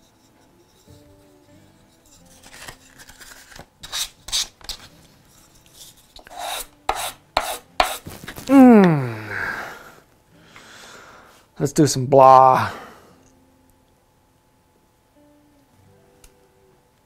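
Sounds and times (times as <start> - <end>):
wood rubbing on sandpaper: 2.1 - 5.0, 5.7 - 8.3
jar lid twisting squeal: 2.2 - 4.9.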